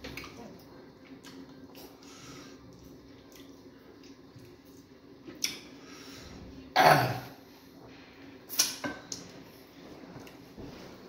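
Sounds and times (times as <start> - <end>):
person clearing throat: 6.8 - 7.4.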